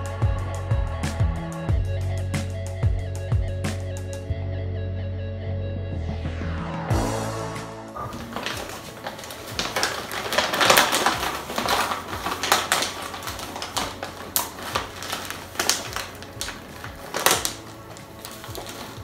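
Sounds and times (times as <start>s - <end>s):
plastic bag crinkling: 8.0s - 19.0s.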